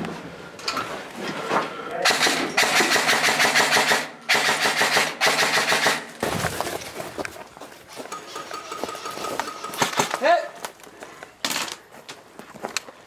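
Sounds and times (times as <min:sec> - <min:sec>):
airsoft rifle firing bursts: 0:02.0 - 0:06.1, 0:08.2 - 0:10.4.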